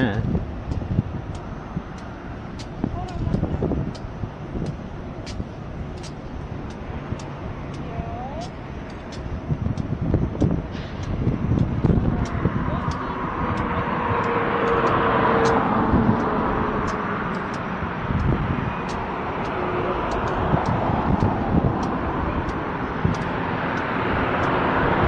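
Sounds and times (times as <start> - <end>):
vehicle engines rumbling: 0.0 - 25.0
faint light ticks: 8.4 - 13.0.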